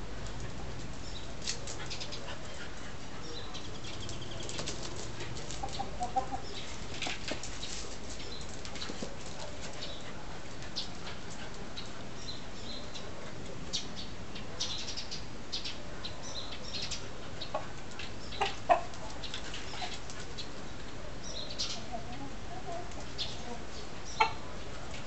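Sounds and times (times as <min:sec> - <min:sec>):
rooster clucking: 0:05.5 - 0:06.6, 0:18.3 - 0:19.1, 0:21.8 - 0:24.5.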